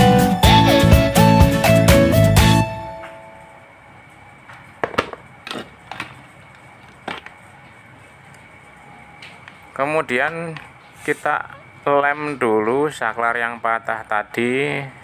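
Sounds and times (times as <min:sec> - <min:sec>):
background music: 0:00.0 - 0:03.6.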